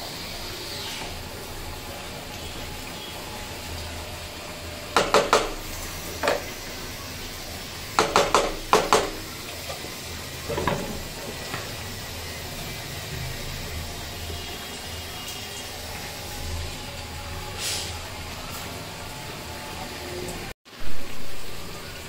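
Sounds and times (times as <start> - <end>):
wooden spoon tapping metal pan: 5.0 - 5.6, 8.0 - 9.3.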